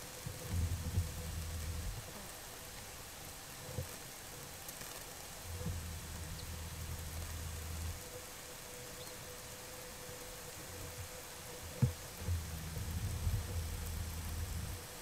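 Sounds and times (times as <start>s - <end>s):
sprinklers spraying water: 0.0s - 15.0s
low rumble: 0.4s - 2.0s, 5.5s - 8.1s, 12.2s - 15.0s.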